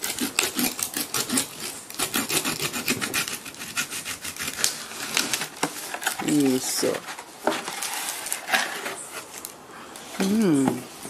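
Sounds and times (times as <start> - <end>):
knife sawing through plastic: 0.0 - 5.6.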